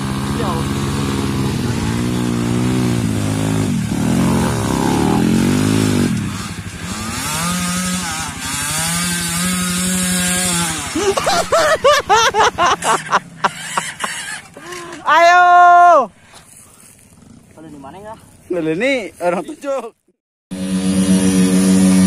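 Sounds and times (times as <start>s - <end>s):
dirt bike engines revving: 0.0s - 22.0s
sharp throttle blips: 20.5s - 22.0s.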